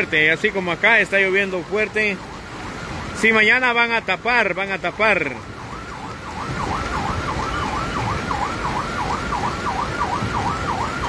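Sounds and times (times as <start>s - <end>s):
heavy rain: 0.0s - 11.0s
siren yelping: 5.1s - 11.0s.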